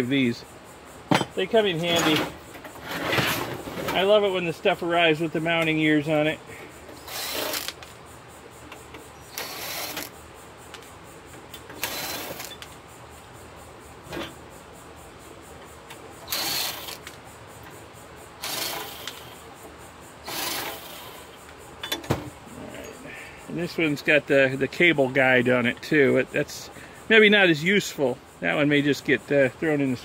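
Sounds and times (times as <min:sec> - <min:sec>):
cordless drill running in bursts: 0:07.0 - 0:07.8, 0:09.3 - 0:10.1, 0:11.8 - 0:12.6, 0:16.2 - 0:17.1, 0:18.4 - 0:19.4, 0:20.2 - 0:21.4.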